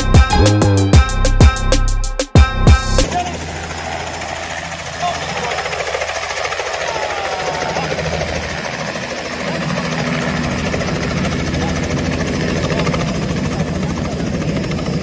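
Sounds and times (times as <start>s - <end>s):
helicopter engine: 0.0s - 15.0s
helicopter rotor blades chopping: 2.4s - 15.0s.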